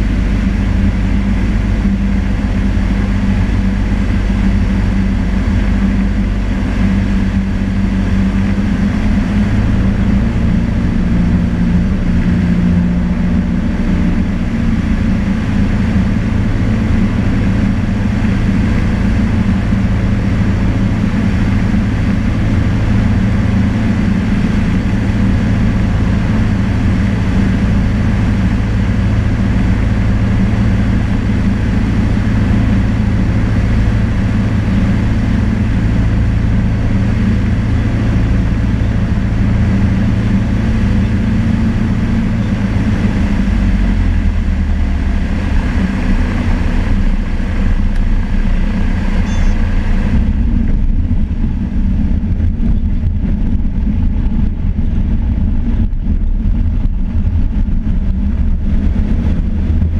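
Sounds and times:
small plane engine and propeller: 0.0s - 59.9s.

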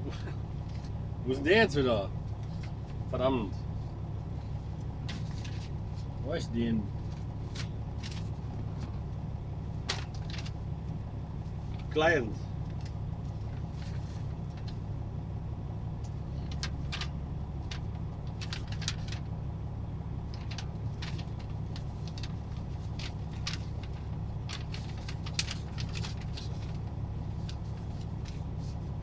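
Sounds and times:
truck engine idling: 0.0s - 29.0s
paper sheets rustling: 5.0s - 6.2s, 6.9s - 9.1s, 9.8s - 10.6s, 12.7s - 14.9s, 16.3s - 19.4s, 20.3s - 29.0s.

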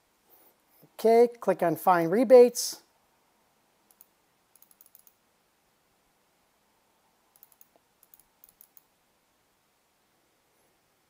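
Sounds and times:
computer mouse clicking: 3.9s - 5.2s, 7.3s - 8.9s.

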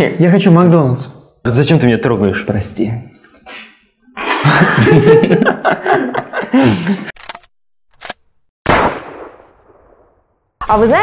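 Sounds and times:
people laughing loudly: 4.2s - 7.2s.

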